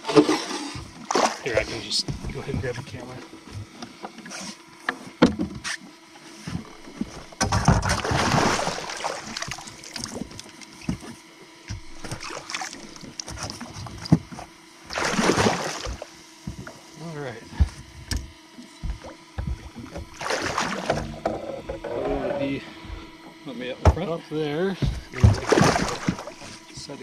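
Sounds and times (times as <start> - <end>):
water splashing against boat: 0.0 - 3.0, 6.5 - 16.9, 18.7 - 23.1, 24.8 - 27.0
faint steady hum: 0.0 - 27.0
gear knocking in boat: 17.5 - 23.2, 23.8 - 26.9.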